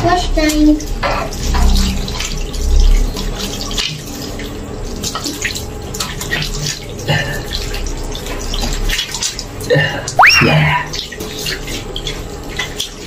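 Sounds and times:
tap water running into sink: 0.0s - 9.6s
water splashing on face: 10.2s - 10.8s.

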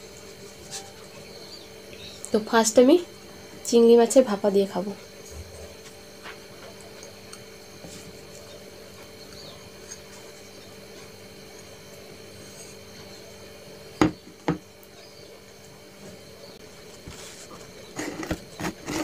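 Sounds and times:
bowl knocking on a table: 14.0s - 14.6s
fingers scraping a bowl: 17.0s - 19.0s.

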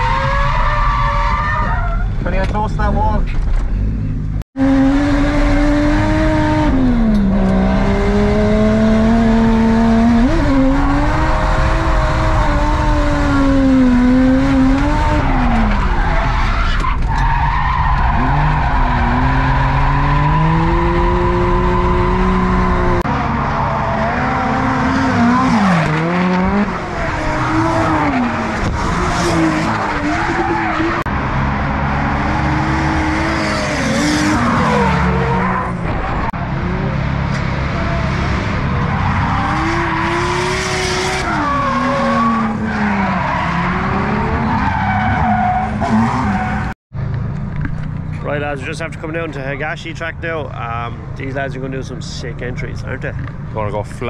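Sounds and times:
car engine revving hard: 4.6s - 15.9s, 18.1s - 31.1s.

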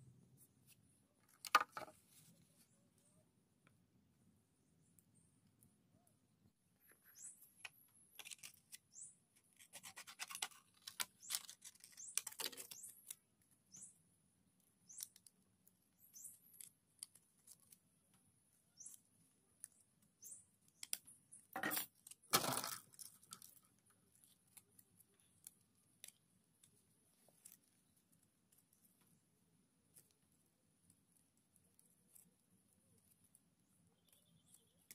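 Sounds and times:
scissors snipping plastic: 9.5s - 13.2s.

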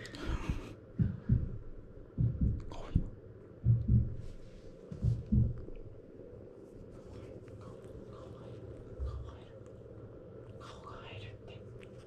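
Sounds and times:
soft low bumps and thuds: 0.3s - 5.9s.

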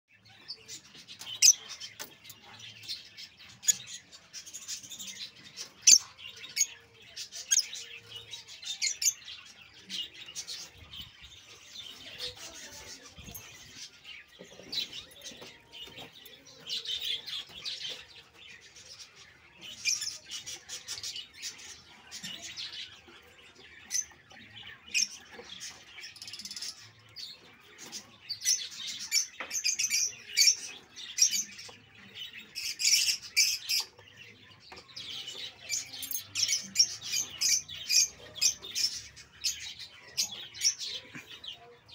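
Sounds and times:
birds chirping: 0.1s - 41.9s.

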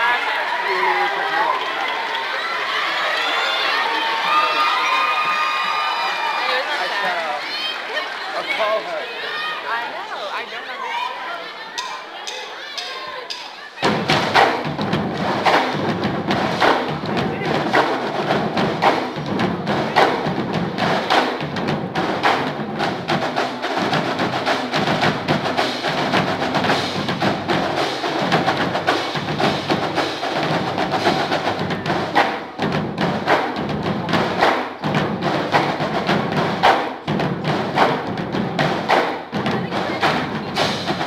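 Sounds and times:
music with heavy percussion beat: 11.8s - 41.0s.

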